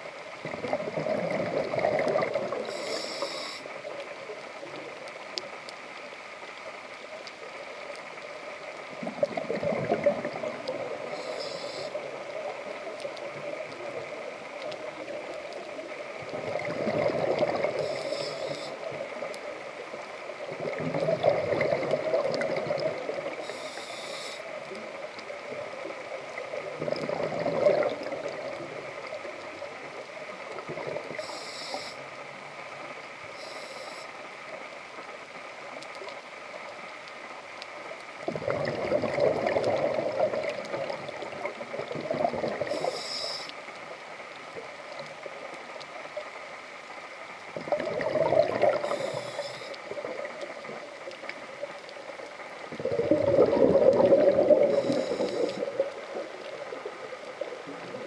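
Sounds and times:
exhaled bubbles rushing: 0:00.4 - 0:02.7, 0:09.0 - 0:11.1, 0:16.3 - 0:17.9, 0:20.5 - 0:23.4, 0:26.8 - 0:28.6, 0:38.3 - 0:42.7, 0:47.6 - 0:49.2, 0:52.7 - 0:58.0
regulator hissing inhalations: 0:02.7 - 0:03.7, 0:11.2 - 0:12.0, 0:17.8 - 0:18.8, 0:23.4 - 0:24.5, 0:31.2 - 0:32.0, 0:33.4 - 0:34.1, 0:42.7 - 0:43.5, 0:48.8 - 0:49.8, 0:54.6 - 0:55.7.

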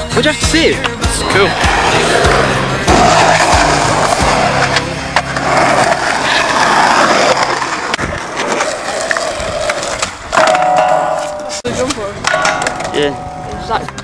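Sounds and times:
skateboard wheels rolling on concrete: 0:00.0 - 0:14.0
skateboard clacks: 0:02.8 - 0:14.0.

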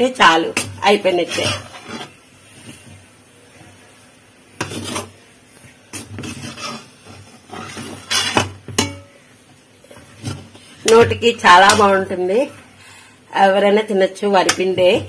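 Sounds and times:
metal ladle scraping metal pan: 0:00.4 - 0:02.2, 0:04.6 - 0:05.2, 0:05.9 - 0:09.0.

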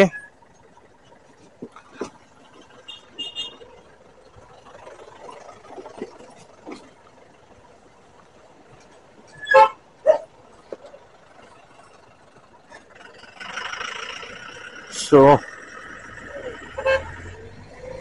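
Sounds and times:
scooter engine and road noise: 0:00.0 - 0:18.0
steady vehicle horn: 0:02.9 - 0:03.6, 0:16.7 - 0:17.3
horn toots: 0:16.7 - 0:17.4.

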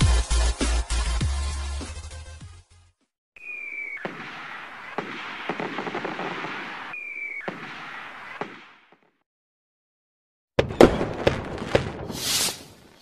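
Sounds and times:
firework whistle: 0:03.4 - 0:08.4, 0:12.0 - 0:12.8
firework bangs: 0:03.4 - 0:09.2, 0:10.6 - 0:13.0
firework crackling: 0:03.7 - 0:08.5, 0:11.0 - 0:13.0.

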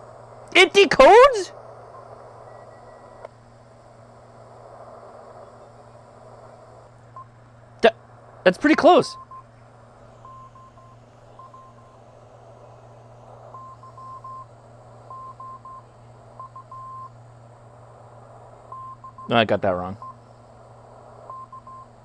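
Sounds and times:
low hum: 0:00.0 - 0:22.0
radio band noise hiss: 0:00.0 - 0:22.0
morse code beeping tone: 0:10.2 - 0:12.0.

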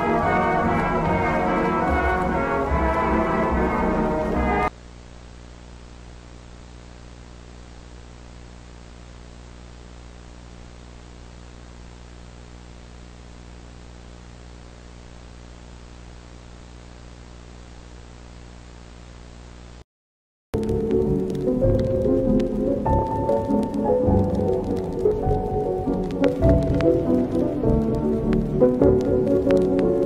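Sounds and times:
orchestral brass music: 0:00.0 - 0:04.7, 0:25.6 - 0:30.0
low electrical hum: 0:00.0 - 0:19.8
static hiss: 0:00.0 - 0:19.8, 0:20.6 - 0:30.0.

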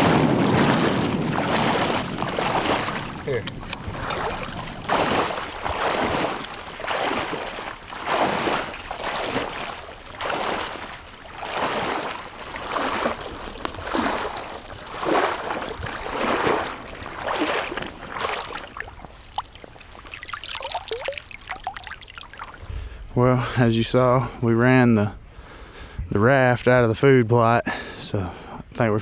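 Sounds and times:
water sloshing with strides: 0:00.0 - 0:23.3.

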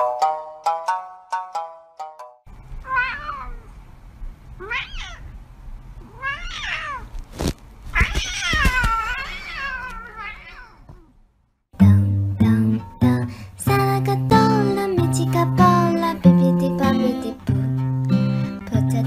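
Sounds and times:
cat meowing: 0:02.8 - 0:03.7, 0:04.6 - 0:05.3, 0:06.0 - 0:07.1, 0:07.9 - 0:11.2.

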